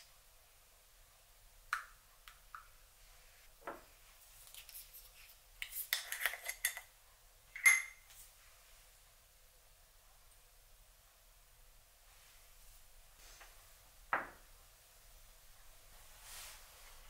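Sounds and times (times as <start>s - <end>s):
metal ladle clinking on ceramic dishes: 7.6s - 8.0s.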